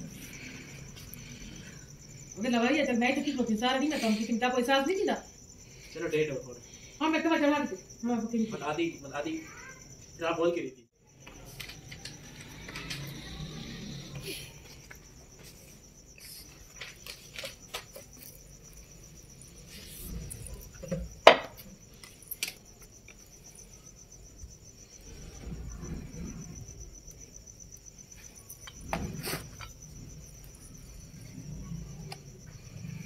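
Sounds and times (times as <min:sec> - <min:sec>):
crickets chirping: 0:00.0 - 0:33.0.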